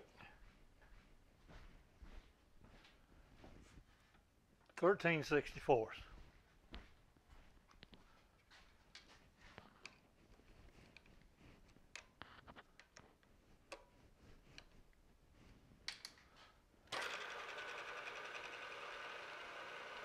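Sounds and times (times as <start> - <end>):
spindle motor running: 16.9 - 20.0.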